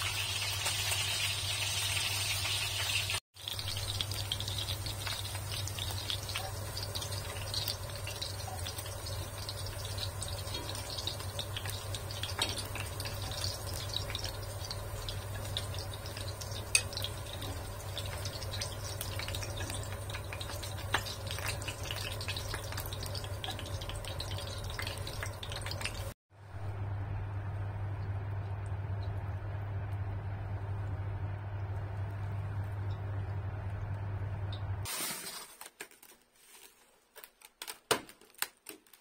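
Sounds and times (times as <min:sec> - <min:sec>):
fried pork crackling: 0:00.0 - 0:26.2
steady low hum: 0:26.4 - 0:34.8.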